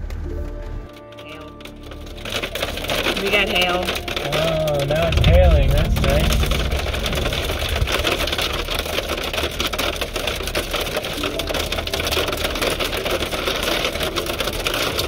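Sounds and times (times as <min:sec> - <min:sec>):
hail pelting car roof: 0:00.0 - 0:15.0
car engine running low: 0:01.6 - 0:15.0.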